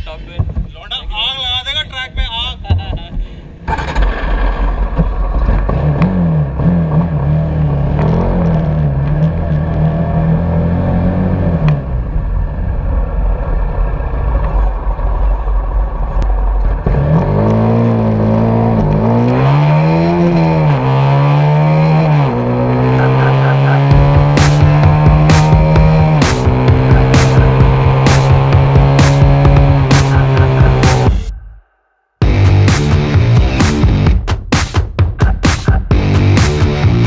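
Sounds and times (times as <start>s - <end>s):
motorcycle engine revving: 14.5s - 31.3s
gear upshifts: 16.2s - 31.3s.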